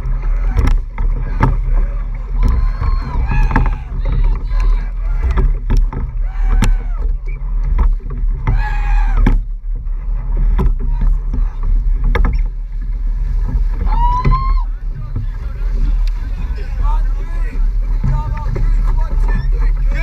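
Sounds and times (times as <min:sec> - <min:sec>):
oars knocking in oarlocks: 0:00.0 - 0:20.0
water rushing: 0:00.0 - 0:20.0
wind on microphone: 0:00.0 - 0:20.0
high yells: 0:02.5 - 0:03.9.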